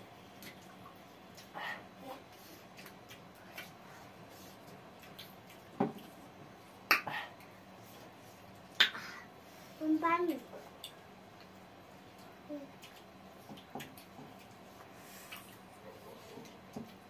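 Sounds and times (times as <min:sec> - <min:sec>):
lip smacks while chewing: 0:04.6 - 0:06.1, 0:12.8 - 0:15.7.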